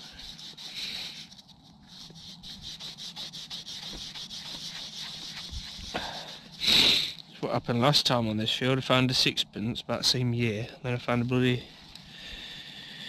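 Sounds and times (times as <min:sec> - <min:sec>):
fingers rubbing soil off coin: 0:00.0 - 0:07.2.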